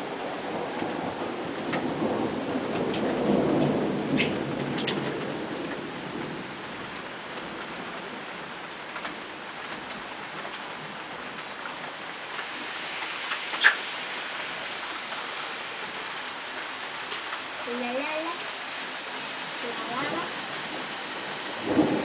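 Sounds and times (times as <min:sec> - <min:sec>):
low roll of thunder: 0:00.0 - 0:10.0, 0:19.5 - 0:22.0
steady rain falling: 0:00.0 - 0:22.0.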